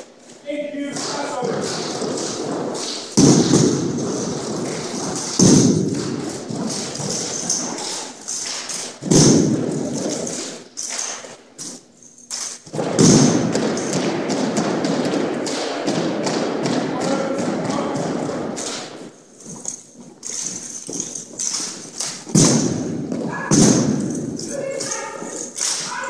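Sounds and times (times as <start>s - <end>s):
rifles thudding and tapping: 0.3s - 26.0s
rifles struck on hardwood floor: 0.9s - 26.0s
boot stamps: 1.0s - 7.5s, 12.7s - 18.9s, 20.4s - 24.4s.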